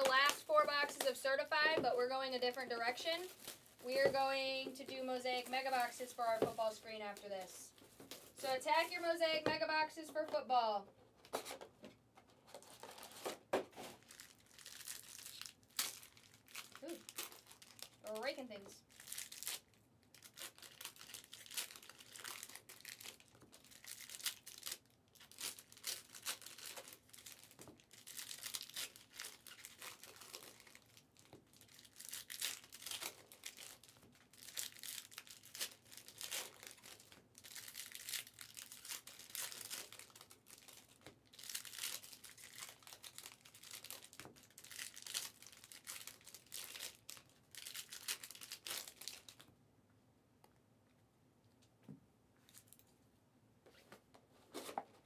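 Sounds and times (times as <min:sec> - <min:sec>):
card wrappers crinkling and tearing: 0:00.0 - 0:04.2, 0:12.5 - 0:49.5.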